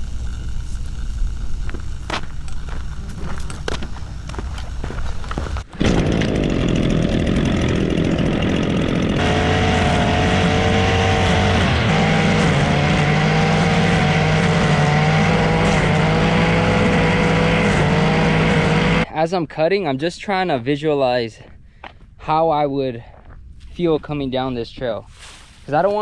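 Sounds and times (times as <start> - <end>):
two-stroke trimmer engine running: 5.4 - 19.0.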